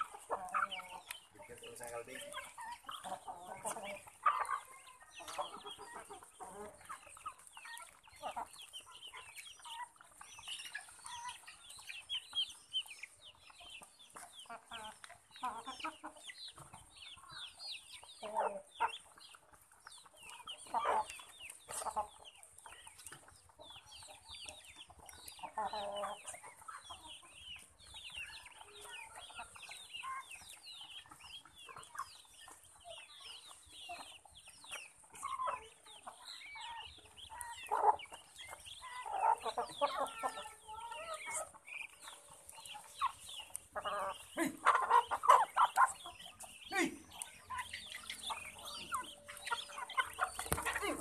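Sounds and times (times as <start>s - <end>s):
chickens clucking: 0.0s - 51.0s.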